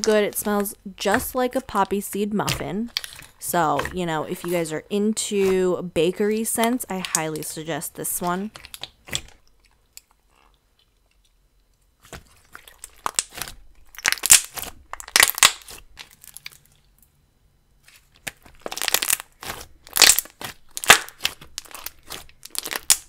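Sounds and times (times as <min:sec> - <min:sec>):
slime stretched and squished: 0:12.0 - 0:16.8, 0:17.9 - 0:23.0.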